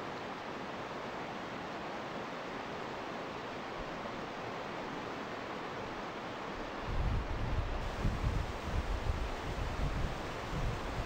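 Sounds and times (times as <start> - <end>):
wind buffeting microphone: 6.9 - 11.0.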